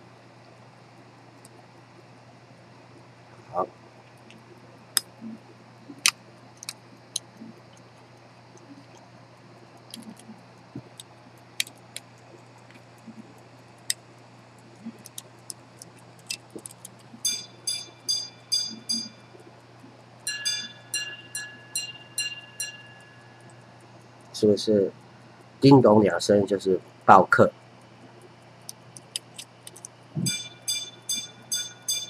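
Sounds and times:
watch handling clicks: 0:15.0 - 0:17.1, 0:28.6 - 0:30.0
pocket watch gong chimes: 0:17.2 - 0:19.3, 0:20.2 - 0:23.4, 0:30.2 - 0:32.0
two-note ding-dong chime: 0:17.3 - 0:19.2, 0:20.3 - 0:23.0, 0:30.2 - 0:32.0.

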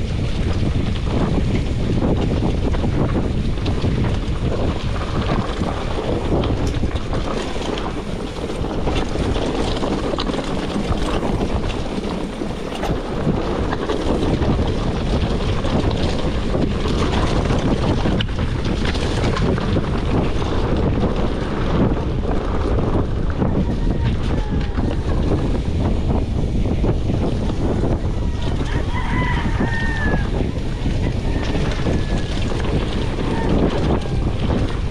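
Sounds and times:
bike clicks and rattles: 0:00.0 - 0:34.9
low tyre rumble: 0:00.0 - 0:34.9
wind on microphone: 0:00.0 - 0:34.9.

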